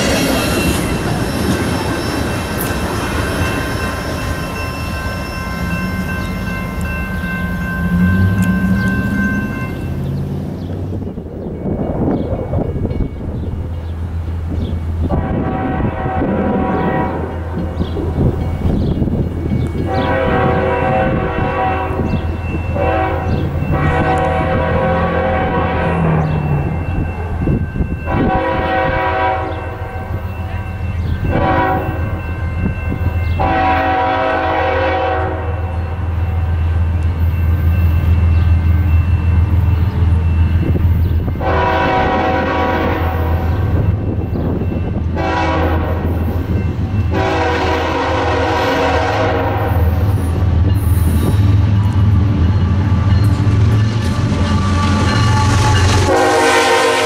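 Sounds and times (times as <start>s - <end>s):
low rumble of passing train: 0.0s - 57.0s
locomotive horn blasts: 15.0s - 17.6s, 19.8s - 26.8s, 28.0s - 30.2s, 31.2s - 32.1s, 33.4s - 36.0s, 41.4s - 43.9s, 45.1s - 46.3s, 47.0s - 50.1s, 54.6s - 57.0s.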